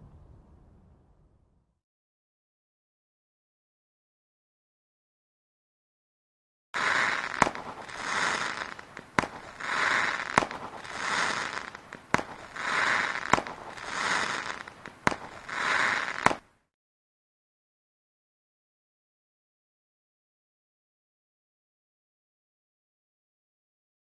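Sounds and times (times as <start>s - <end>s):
fireworks bangs: 6.8s - 16.5s
fireworks crackle: 6.8s - 16.5s.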